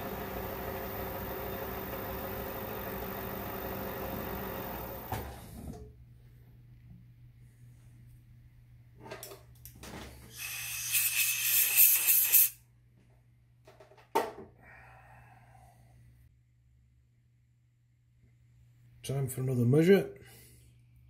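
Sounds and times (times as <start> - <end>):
air blowgun hiss: 10.3 - 12.6.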